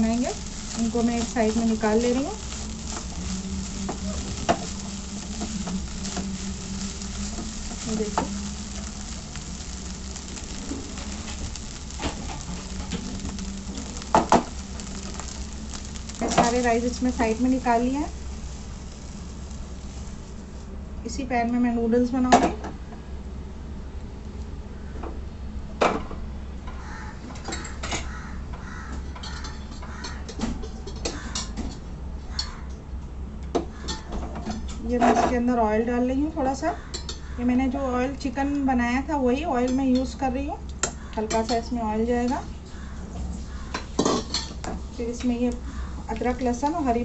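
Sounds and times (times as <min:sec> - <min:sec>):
rice sizzling in a pan: 0:00.0 - 0:24.9, 0:26.8 - 0:32.6, 0:33.6 - 0:47.0
harsh cawing calls: 0:26.8 - 0:27.3, 0:28.0 - 0:30.2, 0:31.1 - 0:31.5, 0:42.7 - 0:43.9.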